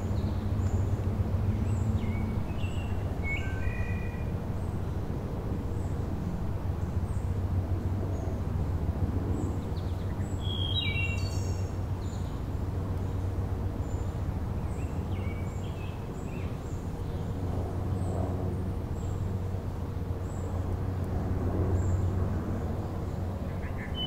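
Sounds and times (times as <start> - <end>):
distant road traffic rumble: 0.0 - 24.0.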